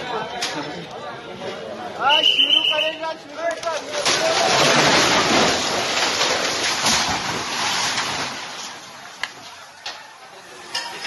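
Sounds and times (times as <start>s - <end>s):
building collapsing crash: 3.8s - 9.6s.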